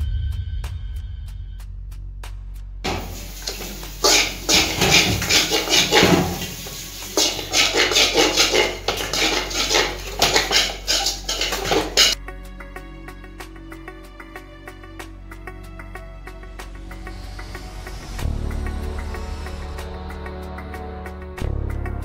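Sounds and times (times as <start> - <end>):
metal spatula scraping a wok: 2.9 - 12.2.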